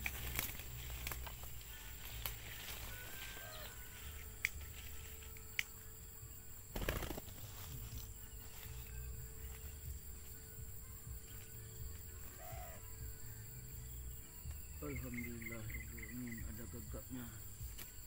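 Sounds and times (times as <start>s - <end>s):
dove flapping wings: 0.0s - 1.5s, 6.7s - 8.0s
dry grass ticks: 0.0s - 6.0s, 6.7s - 16.6s, 17.4s - 18.0s.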